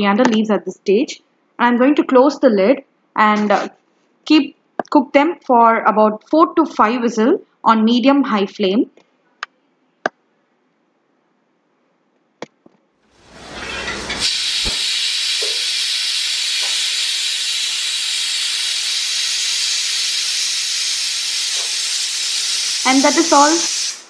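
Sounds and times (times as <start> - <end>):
pressure cooker venting steam: 13.2 - 24.0.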